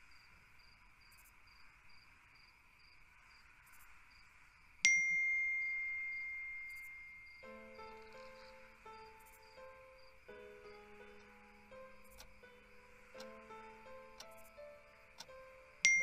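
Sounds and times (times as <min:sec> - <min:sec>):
soft background music: 0:04.9 - 0:16.0.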